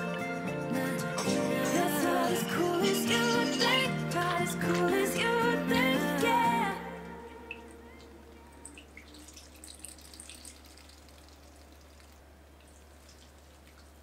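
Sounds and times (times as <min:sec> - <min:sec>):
brine dripping into glass bowl: 0:07.4 - 0:14.0.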